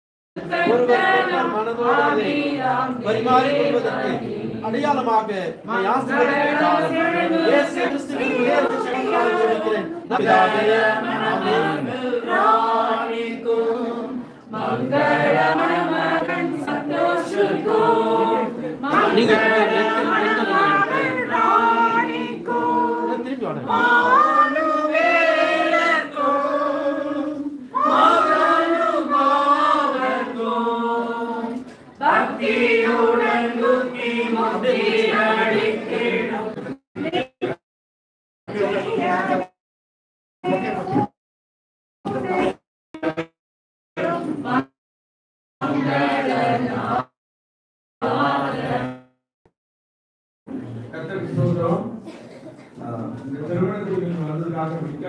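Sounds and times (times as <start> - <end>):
group of voices singing: 0.4 - 37.6, 38.5 - 39.6, 40.4 - 41.2, 42.1 - 43.3, 44.0 - 44.8, 45.6 - 47.2, 48.0 - 49.2.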